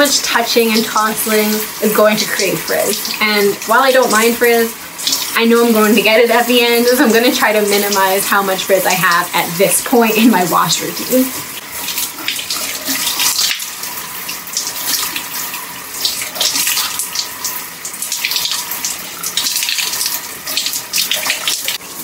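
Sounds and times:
shower water running: 0:00.0 - 0:22.0.

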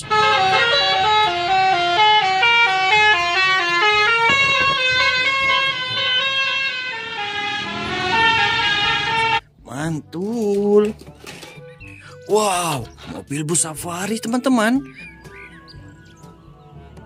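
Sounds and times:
musical bus horn melody: 0:00.0 - 0:09.5.

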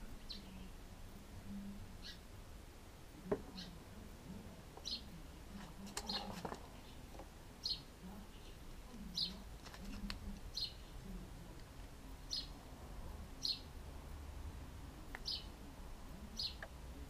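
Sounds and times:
bird chirping: 0:00.0 - 0:00.8, 0:02.0 - 0:02.3, 0:03.3 - 0:03.8, 0:04.8 - 0:09.4, 0:10.0 - 0:11.0, 0:12.2 - 0:12.6, 0:13.4 - 0:13.7, 0:15.1 - 0:15.6, 0:16.3 - 0:16.7.

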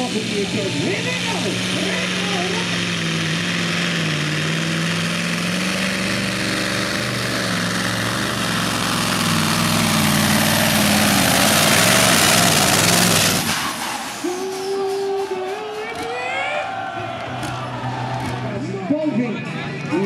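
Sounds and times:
diesel truck engine running under load: 0:00.0 - 0:20.0.

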